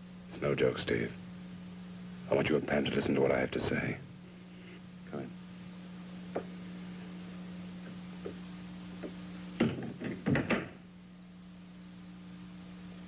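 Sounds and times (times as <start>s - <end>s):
steady low hum: 0.0s - 13.0s
door shutting with thuds: 9.6s - 10.8s.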